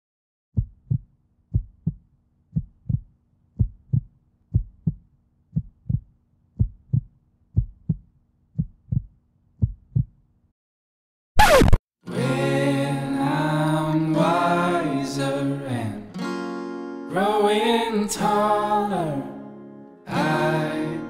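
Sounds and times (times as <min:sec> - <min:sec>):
heartbeat thumps: 0:00.6 - 0:10.2.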